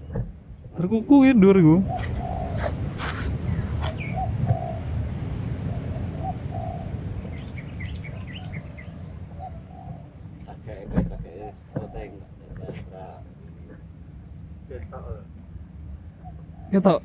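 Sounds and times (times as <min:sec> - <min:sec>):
steady low rumble: 0:00.0 - 0:17.0
dove cooing: 0:01.5 - 0:13.9, 0:16.2 - 0:17.0
high thin bird chirps: 0:01.8 - 0:04.7.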